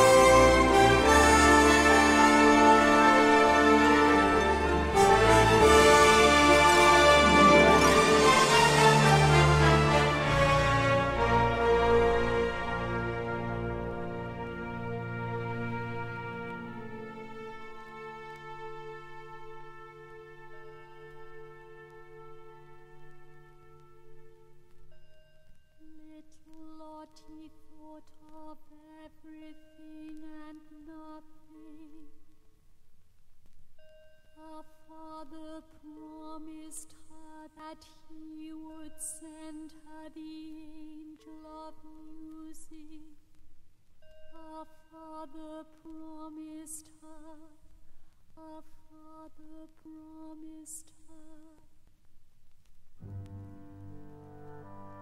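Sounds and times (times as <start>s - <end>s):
woman singing: 25.8s - 32.2s, 34.4s - 43.2s, 44.4s - 47.7s, 48.4s - 51.7s.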